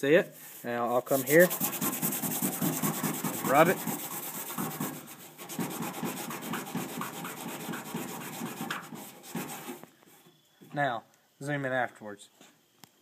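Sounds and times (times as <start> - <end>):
scouring pad scrubbing metal: 1.1 - 9.8.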